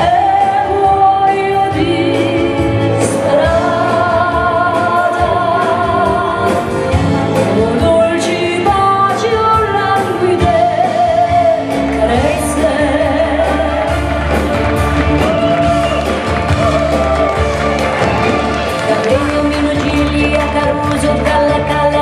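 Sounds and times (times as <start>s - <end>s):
woman singing into a microphone: 0.0s - 14.1s, 18.8s - 22.0s
live pop dance band playing: 0.0s - 22.0s.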